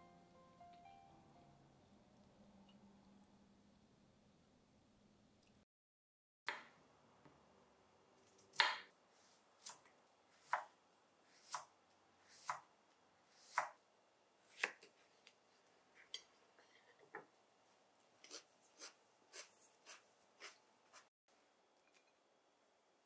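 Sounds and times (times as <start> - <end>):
knife slicing cucumber: 9.6 - 10.7, 11.3 - 12.7, 13.3 - 13.8, 14.5 - 14.9, 18.2 - 21.1.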